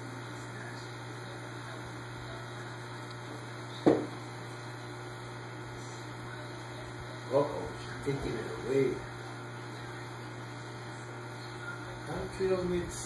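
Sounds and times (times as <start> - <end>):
aquarium equipment humming: 0.0 - 13.0
sharp knock: 3.9 - 4.1.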